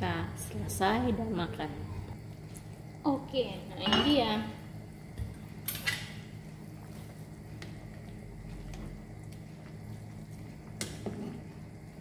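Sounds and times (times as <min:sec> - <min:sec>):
steady low hum: 0:00.0 - 0:12.0
utensil stirring soup in saucepan: 0:05.4 - 0:12.0.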